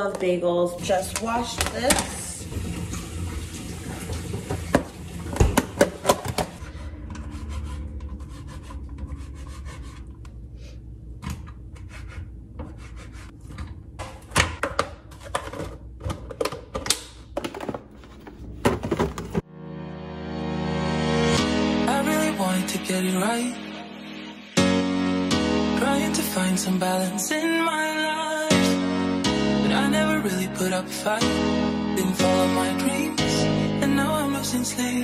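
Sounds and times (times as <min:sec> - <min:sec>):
knife scraping cutting board: 0:07.2 - 0:10.1, 0:11.7 - 0:13.4.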